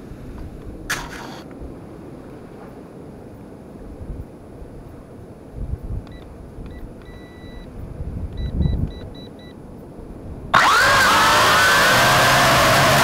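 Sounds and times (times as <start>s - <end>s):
drone motors whining: 0.9s - 1.4s, 10.6s - 13.0s.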